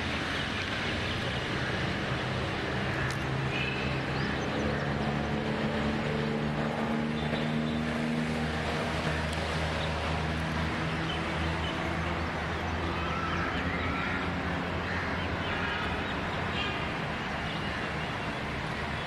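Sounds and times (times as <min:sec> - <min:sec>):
outdoor noise: 0:00.0 - 0:19.0
steady engine drone: 0:00.0 - 0:19.0.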